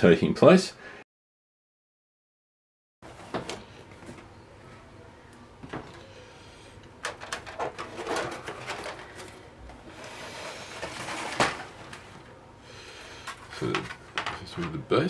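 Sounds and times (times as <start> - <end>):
plastic scraping against cardboard: 7.3 - 12.3.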